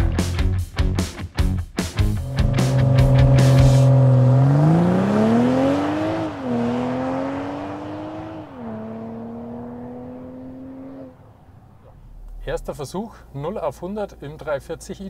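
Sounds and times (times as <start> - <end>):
car engine accelerating hard: 2.2 - 12.4.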